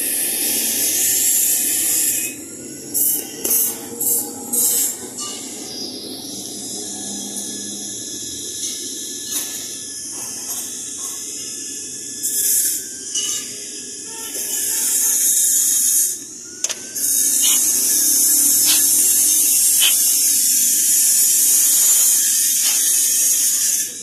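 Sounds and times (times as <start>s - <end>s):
loud steady hiss: 8.0s - 24.0s.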